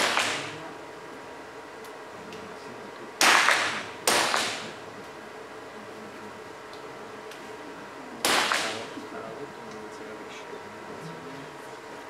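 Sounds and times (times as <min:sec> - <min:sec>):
pistol shots cracking: 0:00.0 - 0:00.6, 0:03.2 - 0:04.7, 0:08.2 - 0:08.9.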